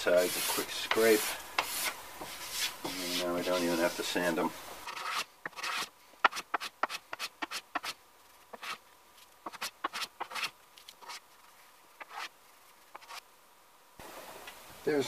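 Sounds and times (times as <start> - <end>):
hand plane shaving swishes: 0.1 - 4.3.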